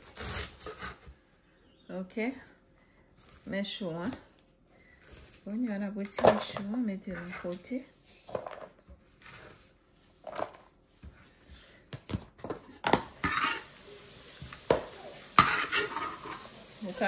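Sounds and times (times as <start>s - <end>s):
utensils and dishes clattering: 14.7s - 16.6s.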